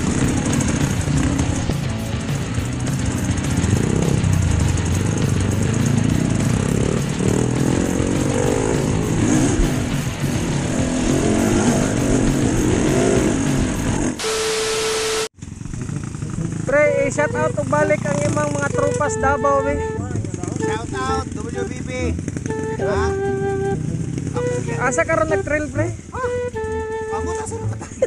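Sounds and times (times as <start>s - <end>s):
dirt bike engine revving: 3.0s - 9.7s, 14.2s - 15.3s
static hiss: 14.2s - 15.3s
steady beep: 14.2s - 15.3s.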